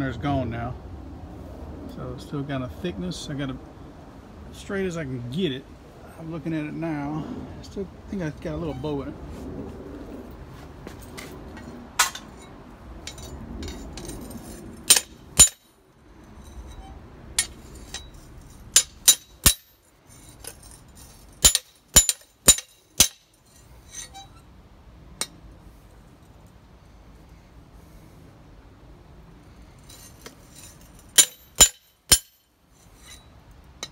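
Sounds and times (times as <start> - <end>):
hammer clinking on metal anvil: 14.9 - 15.7, 18.8 - 19.8, 21.4 - 23.3, 31.2 - 32.5.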